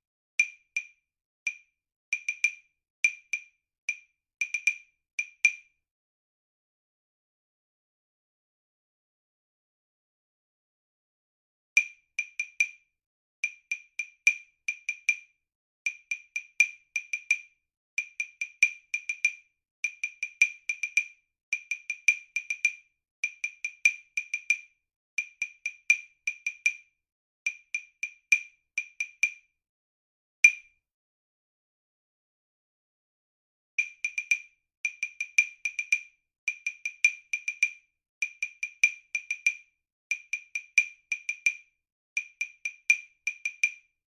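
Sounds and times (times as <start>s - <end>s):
wood-block clicks: 0.4s - 5.7s, 11.8s - 12.8s, 13.4s - 15.3s, 15.9s - 26.9s, 27.5s - 29.5s, 30.4s - 30.8s, 33.8s - 43.9s.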